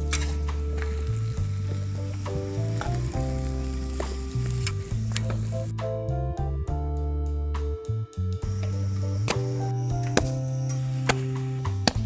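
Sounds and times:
flatbread sizzling in oil: 0.0 - 5.7
spatula scraping griddle: 0.0 - 5.7, 8.6 - 12.0
background music with bass: 0.0 - 12.0.

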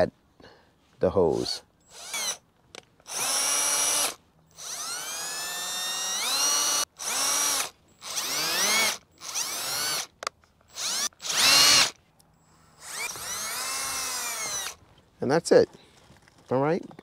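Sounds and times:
power drill whine: 1.8 - 2.4, 3.1 - 10.1, 10.7 - 12.0, 12.6 - 14.8.

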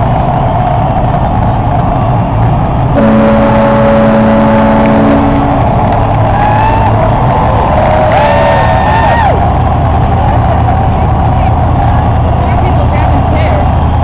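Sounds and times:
crowd cheering and shouting: 0.0 - 3.0, 4.7 - 14.0
horn sounding a chord: 3.0 - 6.1
whoops or whistles: 6.4 - 9.4.

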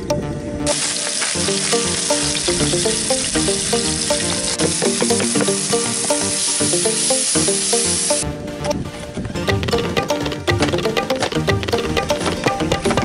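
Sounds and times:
background music: 0.0 - 13.0
tomatoes sizzling in hot oil: 0.7 - 8.2.

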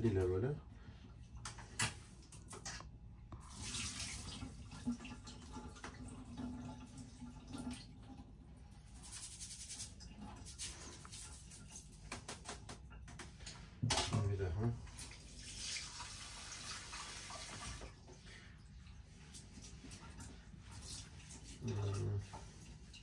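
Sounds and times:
water splashing: 14.9 - 23.0.

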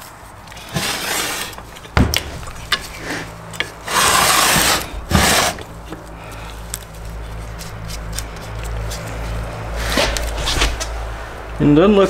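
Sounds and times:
steel bar scraping on metal: 0.5 - 6.0.

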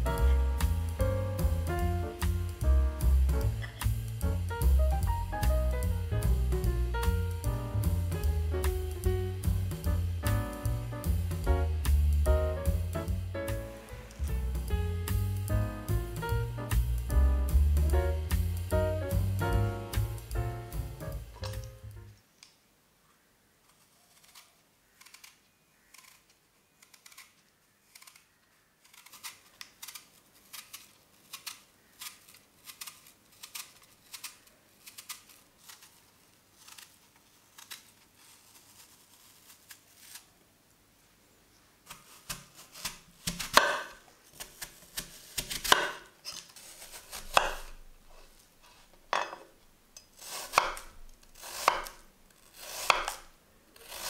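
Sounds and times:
peeler scraping apple: 23.6 - 40.4, 41.8 - 48.9, 50.0 - 54.0.

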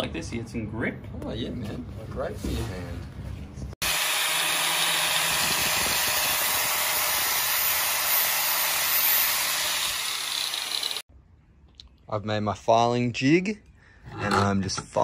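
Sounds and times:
power grinder grinding steel: 3.8 - 11.1.

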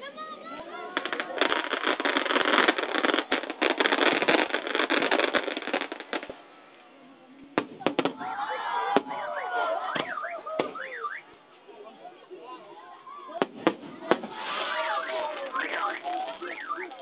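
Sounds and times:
fireworks crackling: 0.0 - 11.5, 13.0 - 17.0
sharp fireworks bangs: 0.9 - 6.4, 7.6 - 8.3, 9.9 - 11.2, 13.4 - 17.0.

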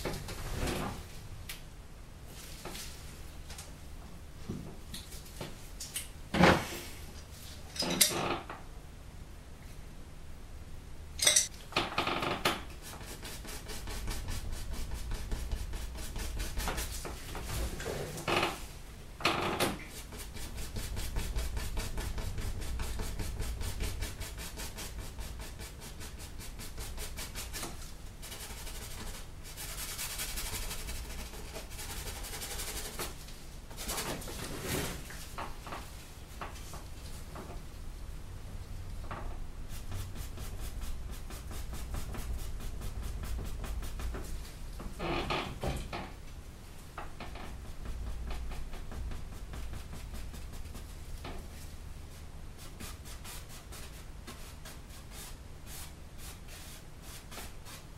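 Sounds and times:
paintbrush scrubbing on canvas: 19.9 - 33.2, 39.7 - 44.4.

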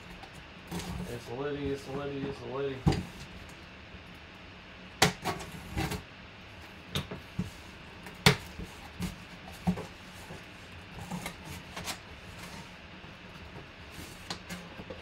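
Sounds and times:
cardboard scraping and rustling: 8.4 - 15.0.

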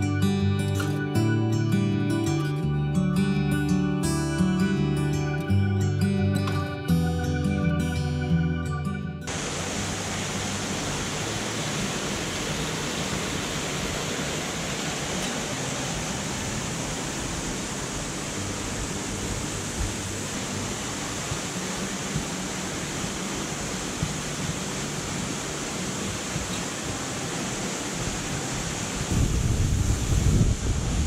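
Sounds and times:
waterfall roaring: 9.3 - 31.0.

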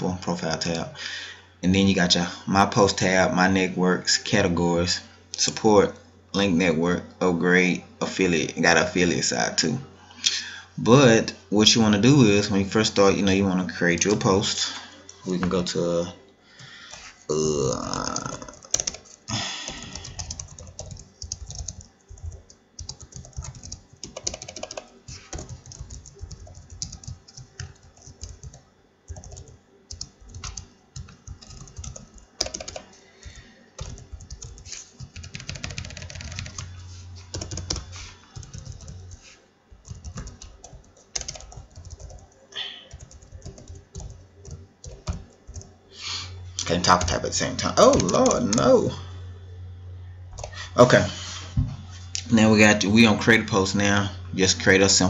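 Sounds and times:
computer keyboard typing: 18.0 - 36.7, 37.3 - 45.7, 46.9 - 48.8, 50.4 - 50.6.

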